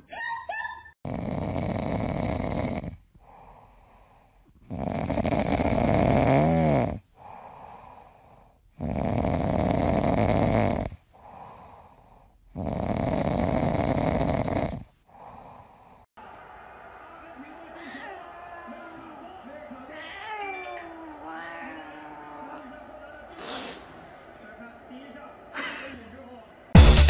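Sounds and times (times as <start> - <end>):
cat snoring: 1.0 - 3.6, 4.6 - 7.7, 8.7 - 15.7.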